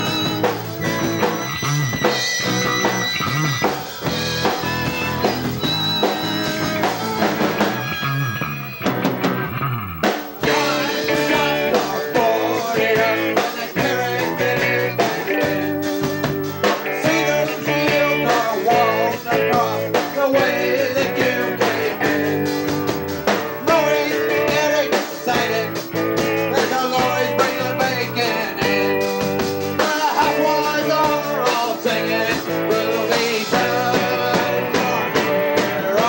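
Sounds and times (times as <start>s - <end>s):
drum kit: 0.0s - 36.0s
electric guitar: 0.0s - 36.0s
person singing: 10.4s - 16.0s, 16.8s - 22.4s, 23.6s - 36.0s.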